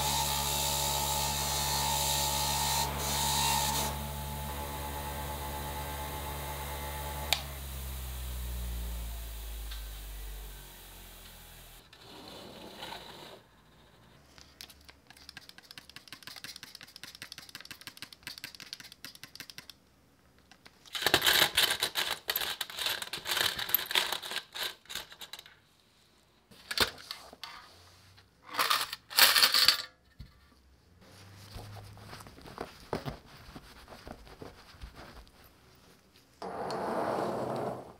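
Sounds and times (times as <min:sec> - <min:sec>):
small metal parts rattling: 0:20.8 - 0:25.6, 0:28.4 - 0:30.1.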